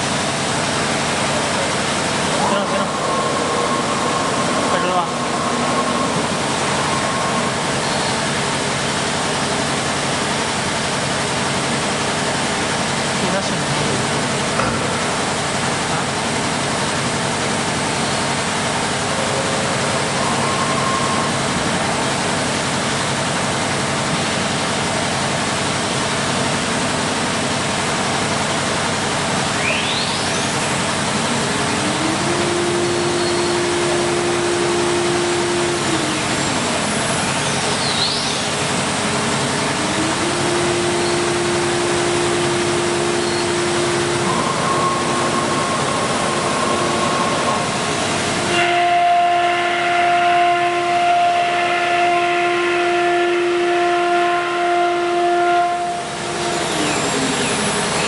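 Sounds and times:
spindle whining: 0.4 - 10.4, 29.5 - 58.0
router running noise: 26.4 - 58.0.

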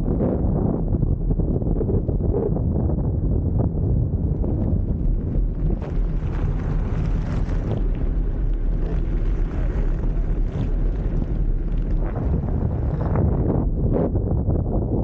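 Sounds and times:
wind buffeting microphone: 0.0 - 15.0
wheels rolling over asphalt: 3.3 - 14.5.

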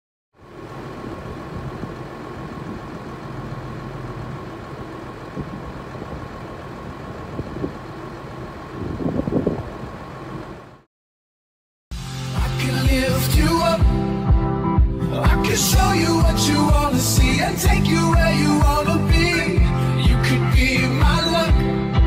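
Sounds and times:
tractor engines idling: 0.4 - 10.9, 15.2 - 21.7.

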